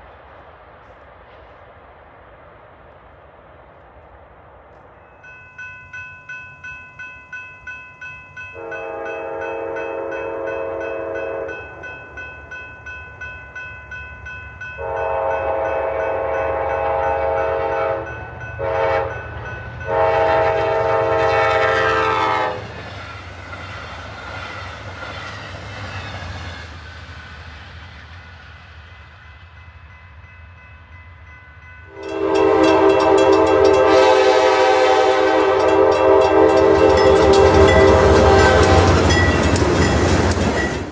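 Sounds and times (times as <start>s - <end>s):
train wheels roaring on rail: 0.0s - 40.9s
ringing crossing bell: 5.0s - 17.3s, 29.2s - 34.4s, 35.2s - 40.9s
locomotive horn blast: 8.6s - 11.6s, 14.8s - 22.7s, 31.9s - 39.2s
train horn: 8.6s - 11.8s, 14.8s - 22.8s, 31.9s - 39.9s
locomotive engine rumble: 31.9s - 40.9s.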